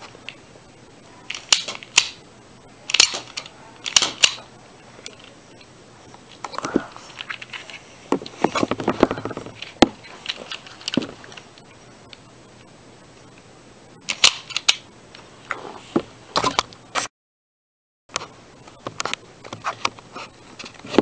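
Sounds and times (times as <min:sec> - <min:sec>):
plastic toy pistol clicking: 0:02.9 - 0:04.4.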